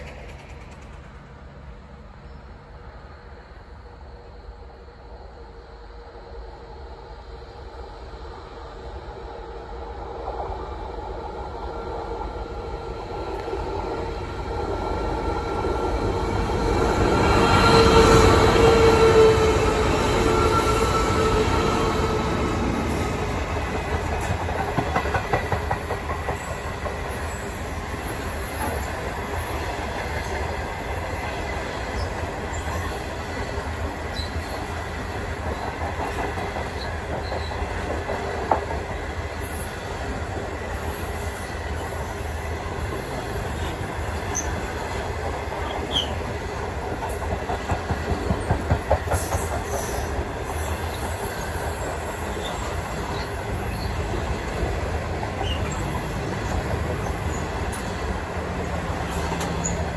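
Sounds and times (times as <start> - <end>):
wheels clacking over rail joints: 0.0 - 1.3, 13.3 - 39.6, 42.8 - 59.9
train wheels rumbling on rails: 0.0 - 59.9.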